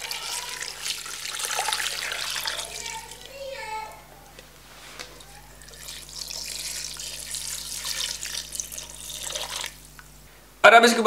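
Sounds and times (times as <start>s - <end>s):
water pouring into a pot: 0.0s - 3.4s, 5.2s - 10.0s.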